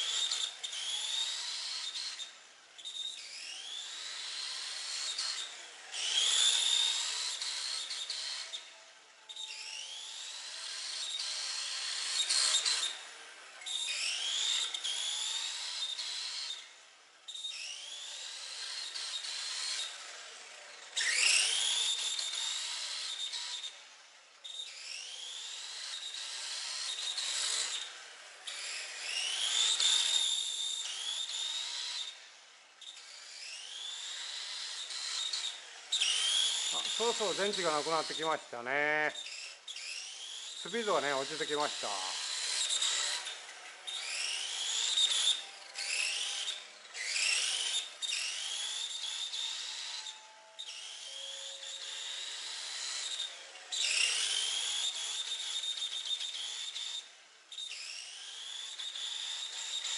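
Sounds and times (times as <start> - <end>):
electric motor whining: 40.5 - 48.3.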